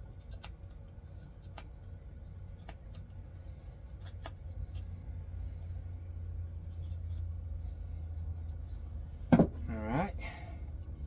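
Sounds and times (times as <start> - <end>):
knife carving wood: 0.0 - 3.1, 3.8 - 4.9.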